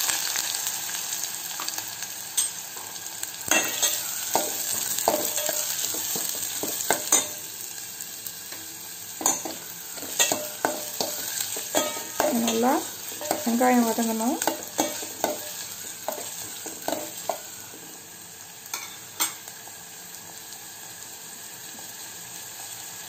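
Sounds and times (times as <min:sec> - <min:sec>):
onions sizzling in hot oil: 0:00.0 - 0:23.0
spoon scraping a steel pot: 0:03.5 - 0:07.4.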